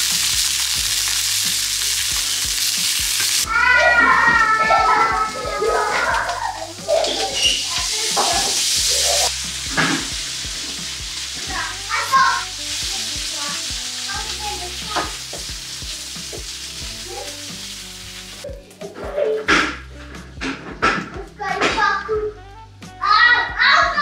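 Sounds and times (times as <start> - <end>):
vegetables sizzling in frying pan: 0.0 - 18.8.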